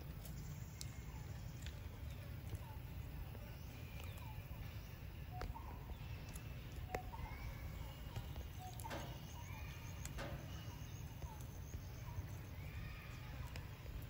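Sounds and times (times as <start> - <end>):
monkeys chirping: 0.8 - 14.0
nuts cracking on metal: 8.7 - 10.7.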